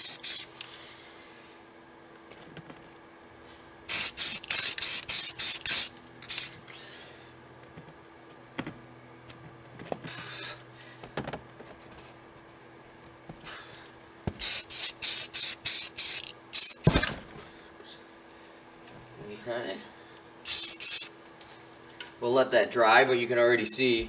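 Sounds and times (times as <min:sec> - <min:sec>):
spray paint hissing in bursts: 0:00.0 - 0:00.6, 0:03.9 - 0:06.9, 0:14.4 - 0:17.0, 0:20.4 - 0:21.2.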